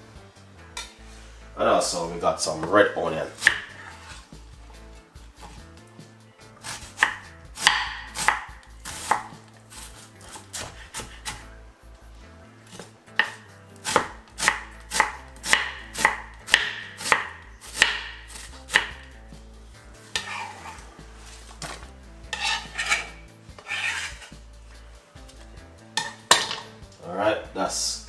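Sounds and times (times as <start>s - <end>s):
knife chopping on wooden board: 3.4s - 4.2s, 6.6s - 11.5s, 12.7s - 19.1s, 20.1s - 20.8s
onion scraped off board: 6.6s - 11.4s, 20.0s - 24.4s.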